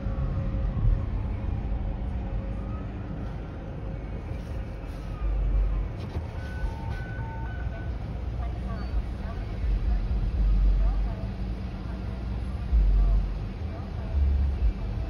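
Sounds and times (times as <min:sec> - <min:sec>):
distant siren wailing: 0:00.0 - 0:09.0
low car cabin rumble: 0:03.4 - 0:15.0.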